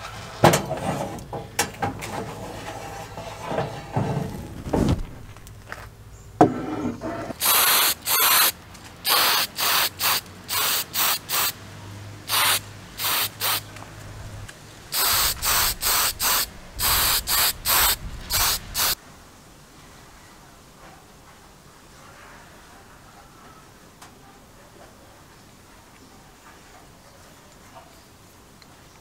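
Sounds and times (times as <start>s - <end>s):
spray paint hissing bursts: 7.4s - 11.6s, 12.2s - 13.7s, 14.9s - 19.0s.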